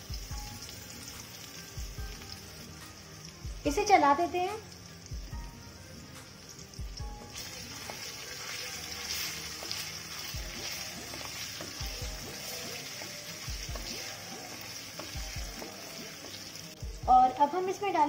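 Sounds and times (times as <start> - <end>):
paste sizzling in hot oil: 0.0 - 18.0
wooden spatula stirring: 7.8 - 16.5.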